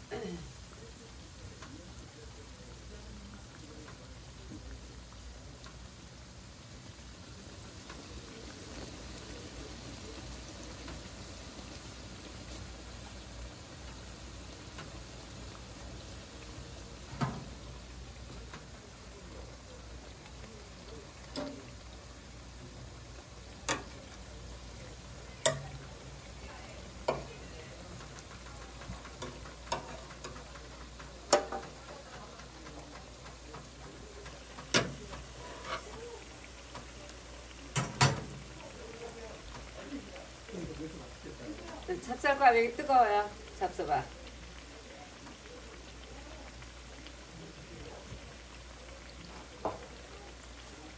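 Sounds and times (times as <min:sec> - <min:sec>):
doughnuts sizzling in hot oil: 0:00.0 - 0:50.9
metal tongs clicking on fryer: 0:14.7 - 0:15.0, 0:20.3 - 0:21.9, 0:23.5 - 0:24.3, 0:24.9 - 0:39.7.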